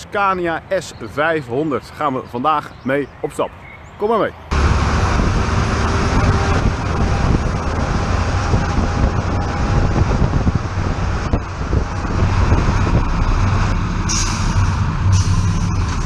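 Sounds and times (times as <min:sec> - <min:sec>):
tyres on asphalt: 0:00.0 - 0:16.0
truck running alongside: 0:04.5 - 0:16.0
wind buffeting microphone: 0:04.5 - 0:16.0.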